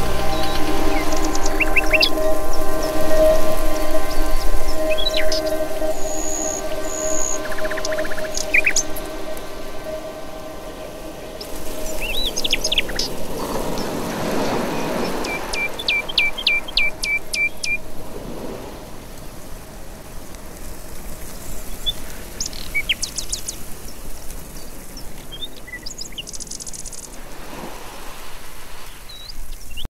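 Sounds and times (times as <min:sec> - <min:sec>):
bird chirps: 0:00.0 - 0:10.2, 0:11.4 - 0:17.8
rapid high bird trill: 0:00.0 - 0:17.8
faint steady hiss: 0:00.0 - 0:29.9.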